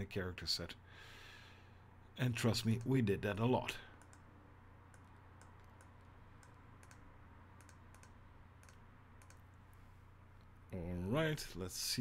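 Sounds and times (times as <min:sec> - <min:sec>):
low steady hum: 0:00.0 - 0:12.0
faint mouse clicks: 0:02.7 - 0:03.0, 0:04.0 - 0:04.3, 0:04.9 - 0:09.6.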